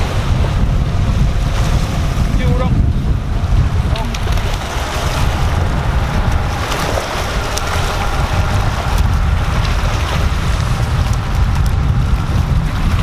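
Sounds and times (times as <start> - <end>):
wind buffeting microphone: 0.0 - 13.0
small waves washing over rocks: 3.8 - 13.0.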